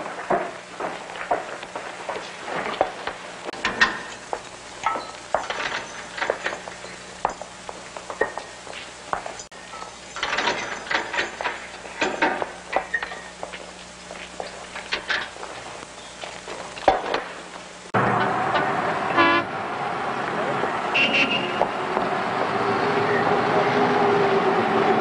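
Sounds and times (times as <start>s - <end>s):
clattering and scraping: 0.0s - 17.4s.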